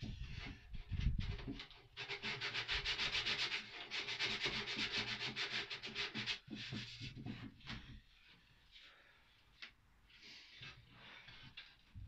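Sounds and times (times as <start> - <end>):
sandpaper rubbing on plywood: 2.0 - 7.4.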